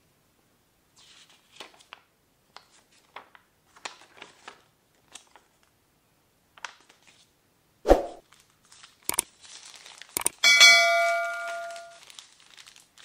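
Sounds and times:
paper leaflet rustling: 0:02.6 - 0:05.6, 0:08.3 - 0:10.2, 0:11.5 - 0:13.0.

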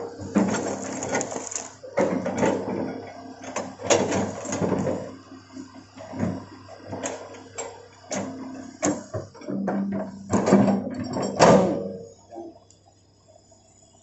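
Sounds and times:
excavator diesel engine running: 0:00.0 - 0:11.0
bucket scraping: 0:00.2 - 0:03.0
metal clanks and knocks: 0:08.1 - 0:12.0.

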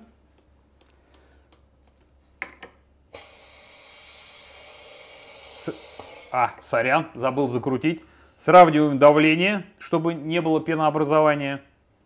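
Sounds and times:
gas hissing: 0:03.1 - 0:06.7.

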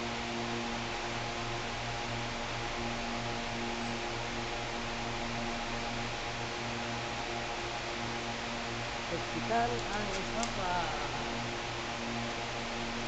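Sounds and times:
electrical hum: 0:00.0 - 0:13.0
even hiss: 0:09.1 - 0:11.5.

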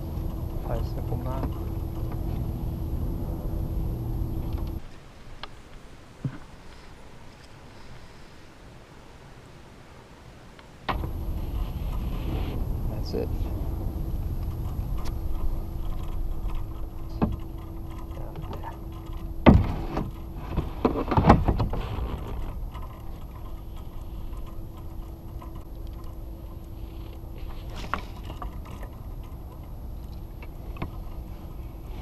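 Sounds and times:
faint steady hum: 0:00.0 - 0:32.0
wind and water noise: 0:00.0 - 0:32.0
sharp clicks and knocks: 0:12.9 - 0:31.2.

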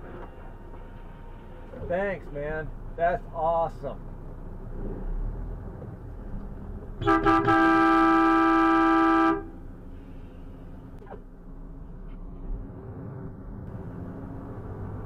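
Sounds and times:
truck cab rumble on road: 0:00.0 - 0:15.0
truck horn blasts: 0:07.0 - 0:09.6.

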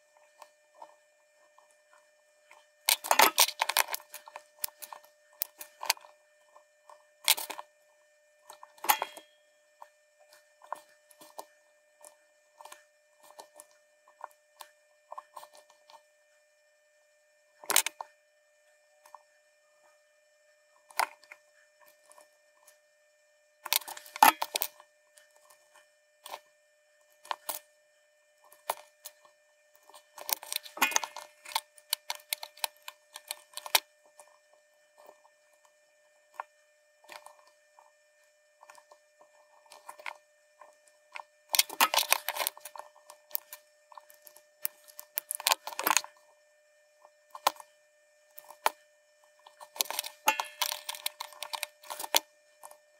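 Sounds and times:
faint steady high tone: 0:05.1 - 0:14.1
small metallic clicking and clinking: 0:08.6 - 0:09.4, 0:49.5 - 0:52.8.

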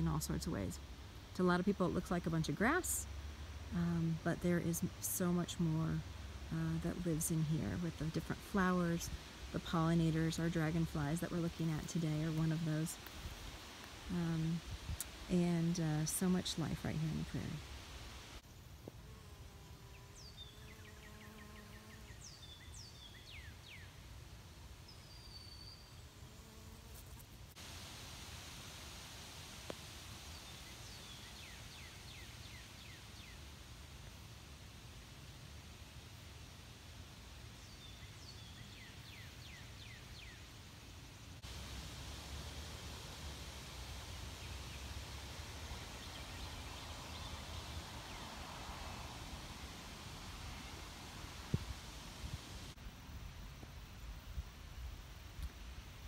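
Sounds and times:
steady hiss: 0:00.0 - 0:56.0
wind rumble on microphone: 0:50.2 - 0:52.7.

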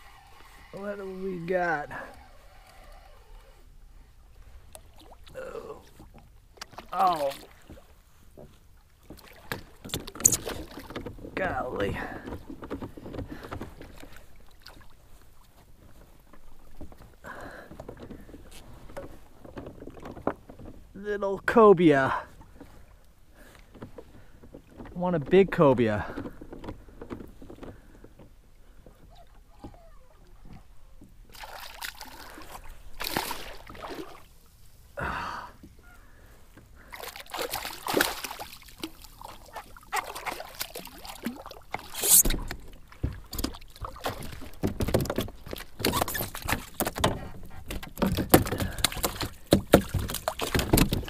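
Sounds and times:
fish splashing at water surface: 0:36.9 - 0:42.6
knocks on kayak hull: 0:47.9 - 0:51.0.

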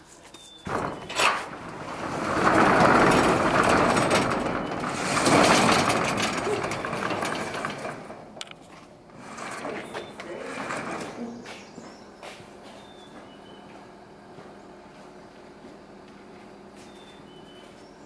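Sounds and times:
steel roll-up door rattling: 0:00.6 - 0:11.6.

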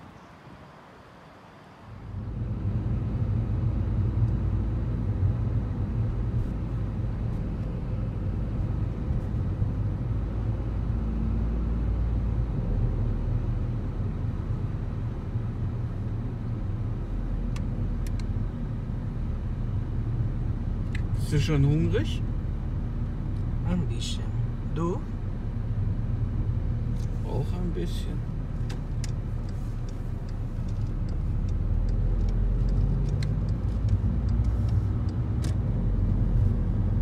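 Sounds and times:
engine and tyre rumble: 0:00.0 - 0:37.0
faint clicks: 0:28.6 - 0:35.6.

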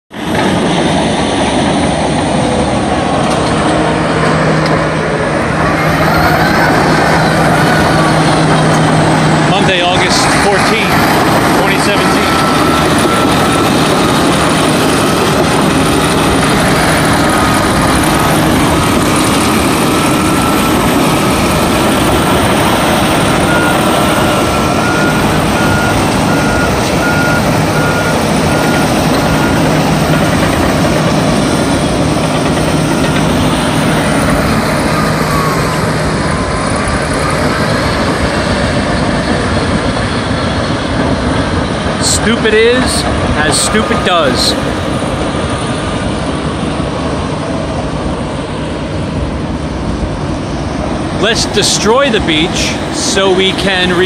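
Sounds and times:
bulldozer diesel engines: 0:00.1 - 0:54.0
rush of slurry noise: 0:00.1 - 0:54.0
backup alarm beeping: 0:09.5 - 0:17.8, 0:22.1 - 0:30.6.

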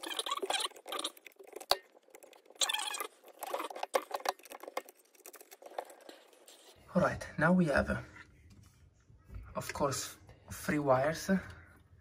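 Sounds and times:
fingers rustling wires and metal: 0:00.0 - 0:06.8.

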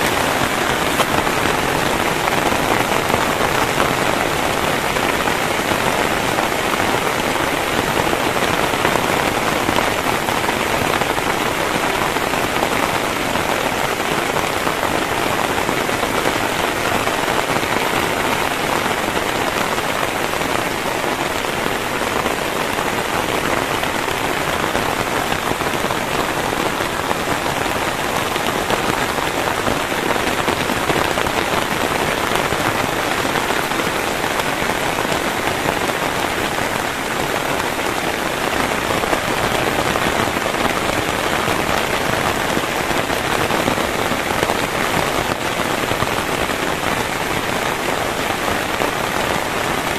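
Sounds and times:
heavy rain: 0:00.0 - 0:49.9.

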